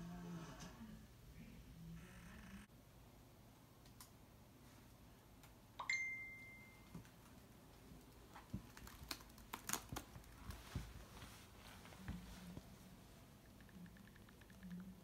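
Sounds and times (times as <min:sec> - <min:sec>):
smartphone message chime: 0:05.8 - 0:06.9
laptop keyboard typing: 0:07.0 - 0:10.6, 0:13.4 - 0:15.0.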